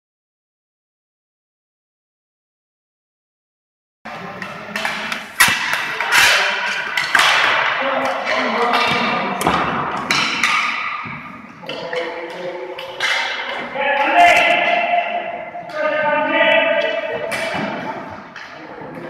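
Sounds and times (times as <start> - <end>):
hockey sticks clacking: 4.1 - 19.0
players calling out: 4.1 - 19.0.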